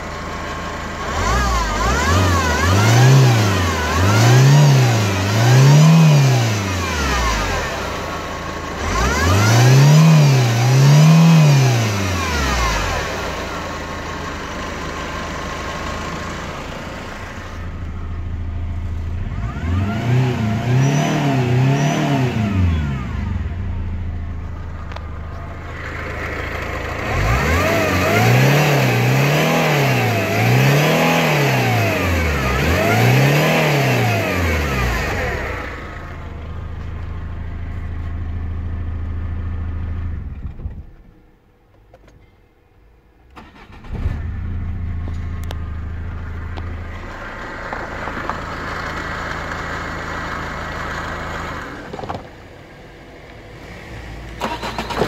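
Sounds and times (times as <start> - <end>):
diesel engine revving and idling: 0.0 - 41.2, 43.2 - 55.0.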